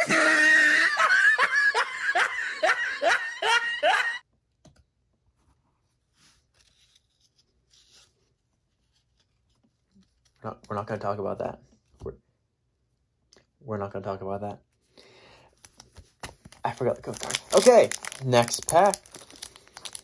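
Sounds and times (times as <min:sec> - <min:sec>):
person laughing: 0:00.0 - 0:04.2.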